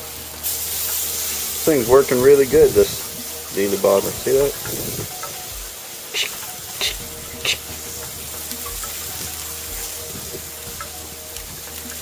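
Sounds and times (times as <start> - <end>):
steak sizzling on grill: 0.0 - 12.0.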